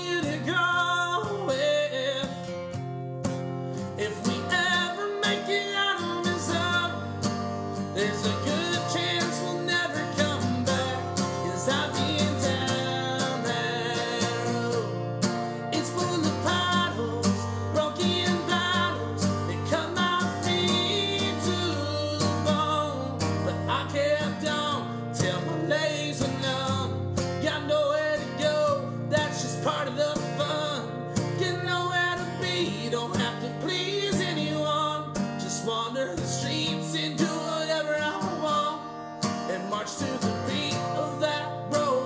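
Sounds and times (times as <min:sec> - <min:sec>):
folk song with acoustic guitar: 0:00.0 - 0:42.0.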